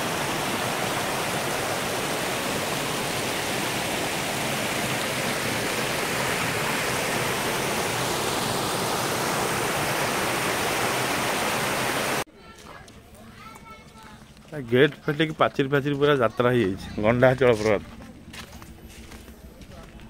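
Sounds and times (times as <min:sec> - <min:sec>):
waterfall rushing over rocks: 0:00.0 - 0:12.2.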